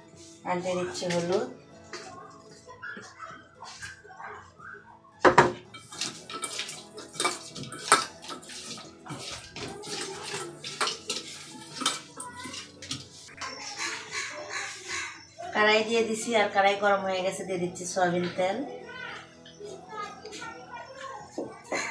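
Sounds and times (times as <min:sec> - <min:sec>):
knock on metal bowl: 0:05.3 - 0:05.6.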